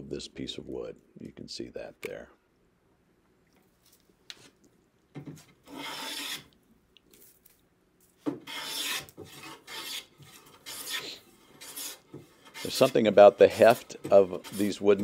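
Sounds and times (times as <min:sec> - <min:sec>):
hand plane rasping on wood: 0:05.7 - 0:06.4, 0:08.5 - 0:15.0.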